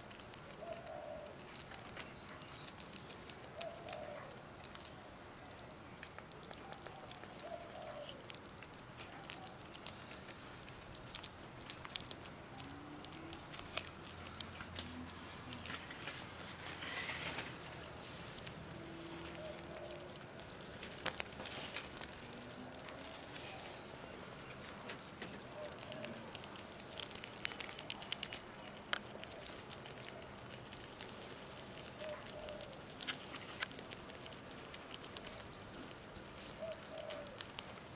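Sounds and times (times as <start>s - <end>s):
rats chewing with crunches: 0.0s - 37.9s.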